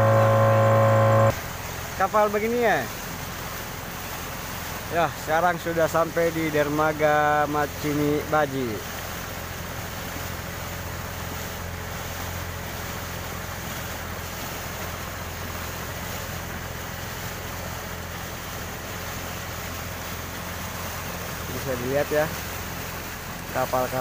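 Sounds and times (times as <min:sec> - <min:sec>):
outboard motor humming: 0:00.0 - 0:24.0
water rushing: 0:00.0 - 0:24.0
wind: 0:00.0 - 0:24.0.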